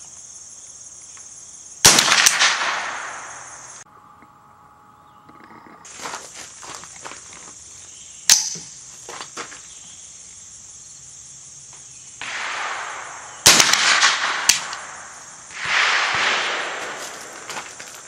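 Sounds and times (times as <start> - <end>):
rifle shots: 1.8 - 3.8, 12.2 - 18.0.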